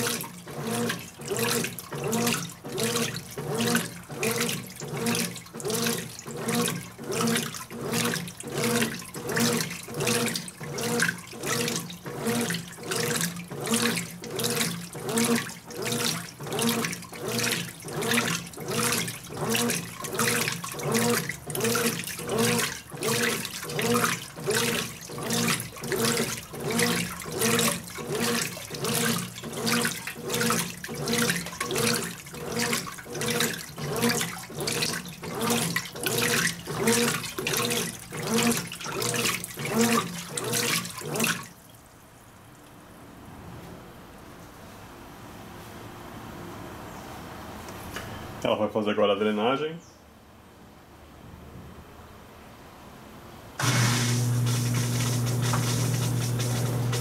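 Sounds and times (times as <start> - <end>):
washing machine motor humming: 0.0 - 41.5, 53.6 - 57.0
washing machine water sloshing: 0.0 - 42.7, 53.6 - 57.0.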